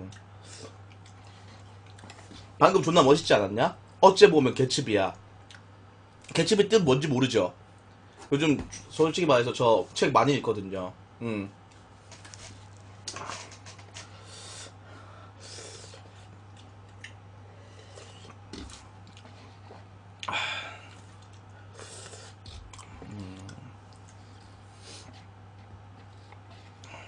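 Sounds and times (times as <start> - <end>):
steady low hum: 0.0 - 27.0
person chewing and slurping noodles: 0.1 - 2.6, 15.4 - 20.3, 20.9 - 26.9.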